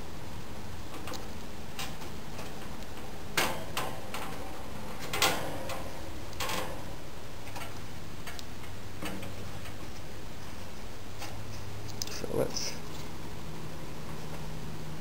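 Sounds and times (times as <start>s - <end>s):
box fan humming and ticking: 0.0s - 15.0s
metal grill knocks and rattles: 1.8s - 10.0s.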